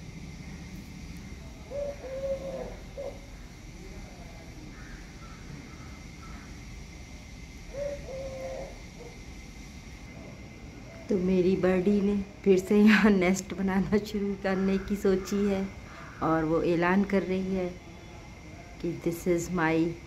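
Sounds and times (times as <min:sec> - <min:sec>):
faint bird calls: 0:01.2 - 0:06.7, 0:07.6 - 0:09.2, 0:14.4 - 0:16.4
dove cooing: 0:01.4 - 0:03.5, 0:07.7 - 0:09.2.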